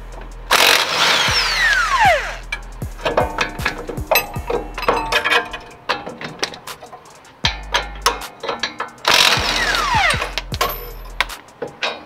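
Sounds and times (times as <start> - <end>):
impact wrench whine: 0.5 - 5.7, 7.5 - 11.0
metallic knocks and clinks: 3.0 - 9.5, 10.1 - 12.0.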